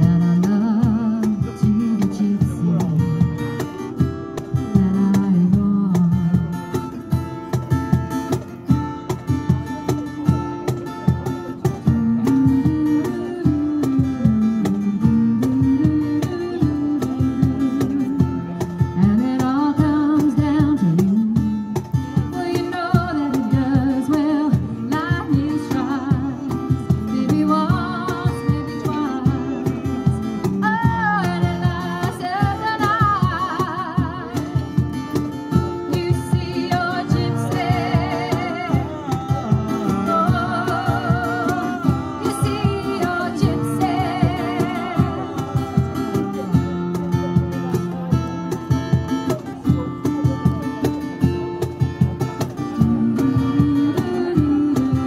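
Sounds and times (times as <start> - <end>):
strummed acoustic guitar: 0.0 - 55.0
woman singing with vibrato: 22.3 - 29.6, 35.7 - 46.6, 52.8 - 55.0.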